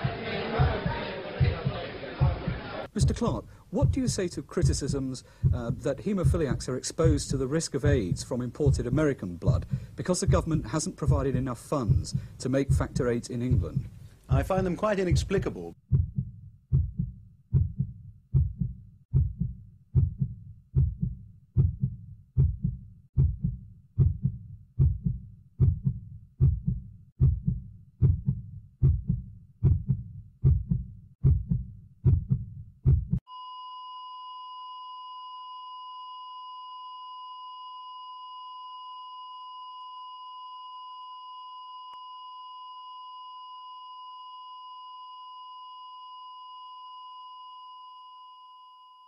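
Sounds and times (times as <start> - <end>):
heartbeat: 0.0 - 33.3
heart monitor flatline beep: 3.0 - 27.4, 32.2 - 49.0.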